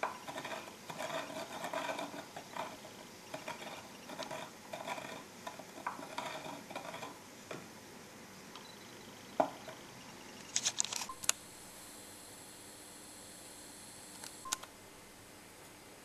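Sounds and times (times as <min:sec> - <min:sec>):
stick scraping against glass: 0:00.0 - 0:07.2
sharp clicks: 0:14.1 - 0:14.7.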